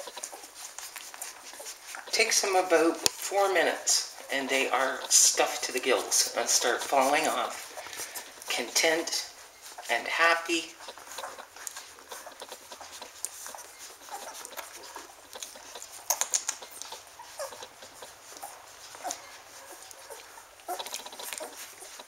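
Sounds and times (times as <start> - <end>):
puppies sucking and smacking: 0.0 - 22.0
puppy squeaks: 10.8 - 22.0.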